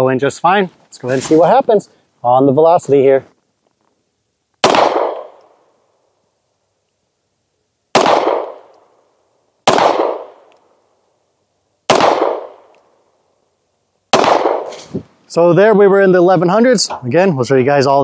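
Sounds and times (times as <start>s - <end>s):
pistol shots with echo: 4.6s - 5.6s, 7.9s - 8.8s, 9.6s - 10.5s, 11.9s - 12.7s, 14.1s - 14.8s.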